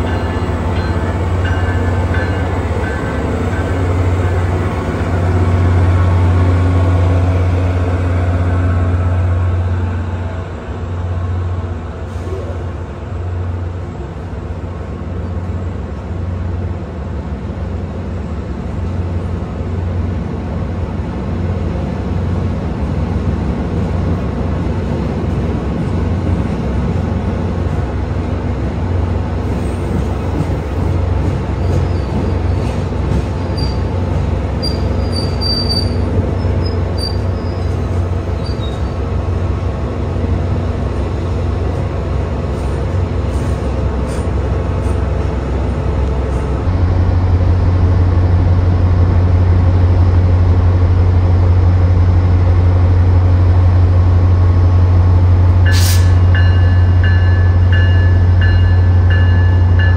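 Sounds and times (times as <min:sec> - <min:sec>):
train rolling on jointed track: 0:22.8 - 0:59.9.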